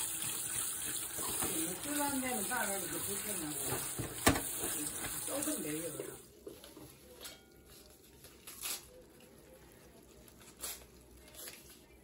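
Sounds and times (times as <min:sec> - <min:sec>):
wet squishing of noodles: 0:07.6 - 0:12.0.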